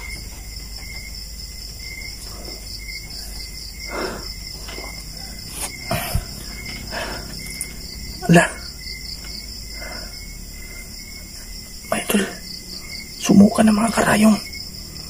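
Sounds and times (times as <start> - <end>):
crickets chirping: 0.0 - 15.0
soft rustles: 4.3 - 7.8.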